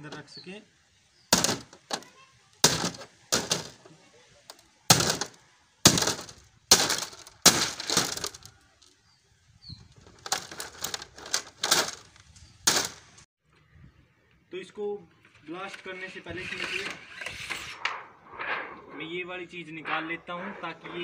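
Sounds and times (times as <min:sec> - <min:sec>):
metal tool striking plastic casing: 0:01.3 - 0:03.8, 0:04.5 - 0:08.5
plastic casing cracking: 0:01.3 - 0:03.9, 0:04.5 - 0:09.0, 0:09.9 - 0:13.1.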